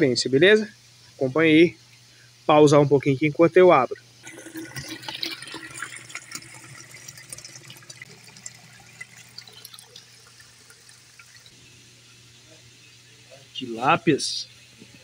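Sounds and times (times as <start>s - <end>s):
water running and splashing: 4.2s - 11.6s.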